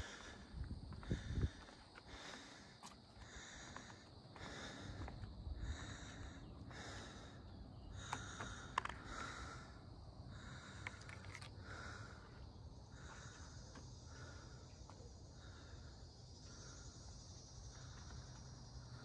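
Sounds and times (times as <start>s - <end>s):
person breathing hard: 0.0s - 19.0s
faint clicks: 8.0s - 9.1s.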